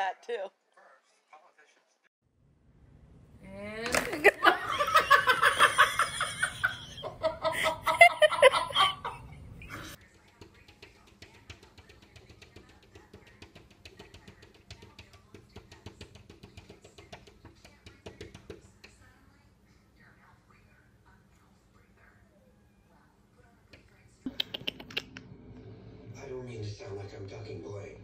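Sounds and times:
person laughing hard: 4.2s - 10.0s.

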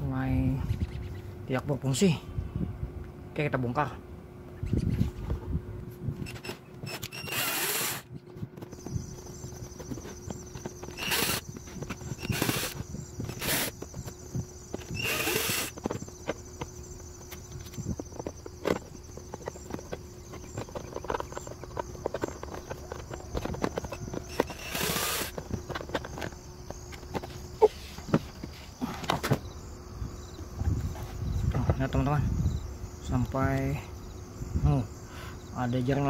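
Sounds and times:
cordless drill whirring: 6.2s - 8.1s, 10.2s - 13.9s, 14.8s - 15.8s, 23.8s - 25.4s.

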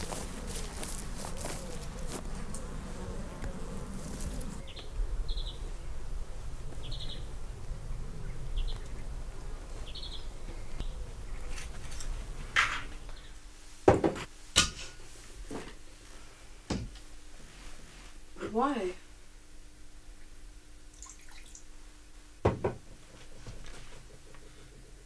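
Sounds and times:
footsteps rustling on grass: 0.0s - 4.7s
faint steady hum: 0.0s - 25.0s.

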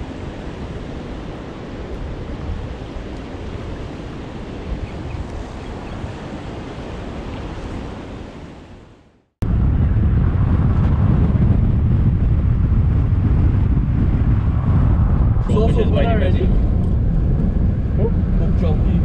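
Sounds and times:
small waves washing on shore: 0.0s - 9.2s
wind on microphone: 0.0s - 19.0s
car driving along road: 9.5s - 19.0s.

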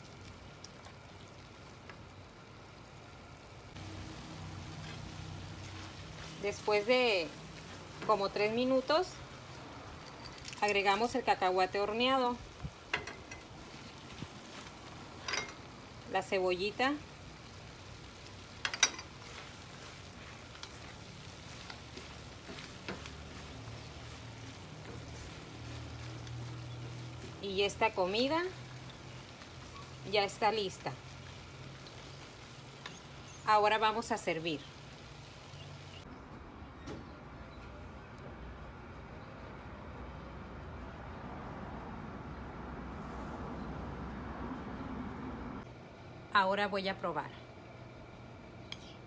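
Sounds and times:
food sizzling in a wok: 1.5s - 10.3s, 10.9s - 36.1s
utensils knocking against a pan: 12.9s - 13.5s.

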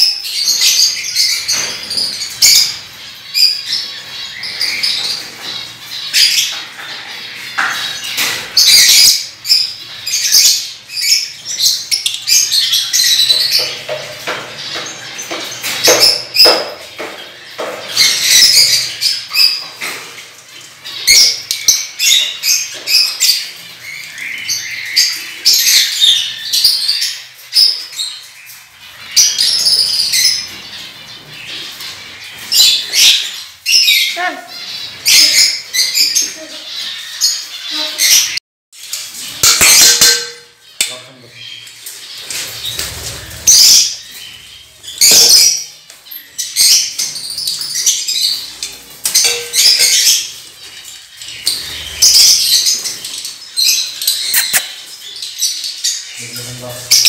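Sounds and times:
small birds chirping: 0.0s - 57.0s
bird squawks: 54.1s - 54.9s.

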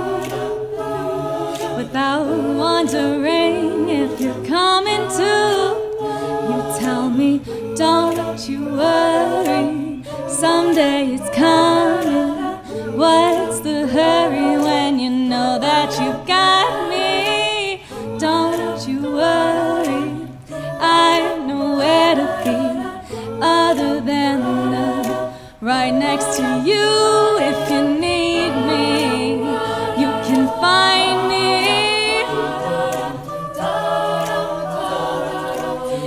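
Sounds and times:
a cappella group singing: 0.0s - 36.0s.

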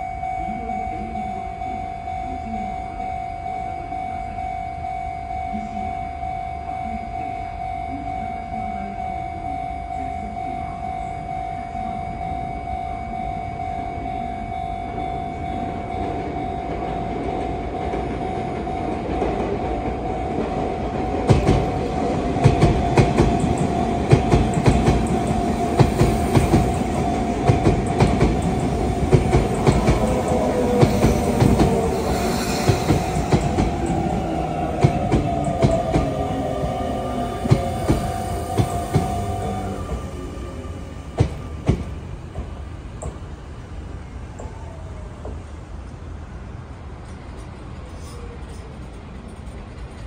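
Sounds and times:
steady high tone: 0.0s - 42.3s
train wheels clicking on rail joints: 16.0s - 43.4s, 46.7s - 50.0s
train brakes whining: 16.3s - 43.4s.

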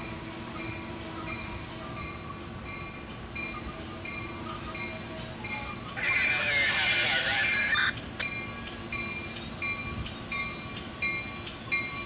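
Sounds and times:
railroad warning bell dinging: 0.0s - 12.0s
train rumbling: 0.0s - 12.0s.

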